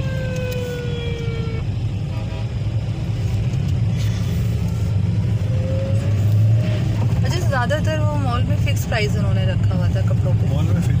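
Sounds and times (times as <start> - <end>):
siren wailing: 0.0 - 1.7
car engine and road noise: 0.0 - 11.0.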